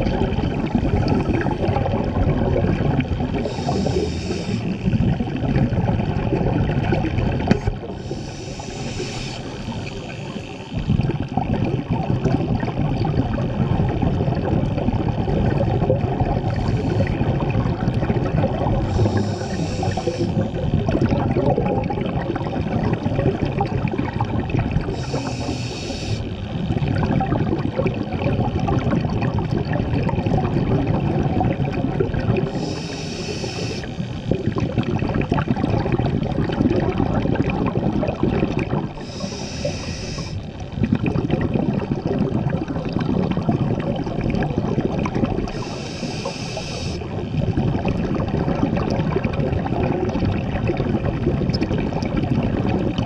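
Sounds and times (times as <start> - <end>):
exhaled bubbles underwater: 0.0 - 53.0
hissing regulator inhalations: 3.4 - 4.9, 7.9 - 10.8, 18.8 - 20.5, 24.9 - 26.4, 32.5 - 34.0, 39.0 - 40.5, 45.5 - 47.1.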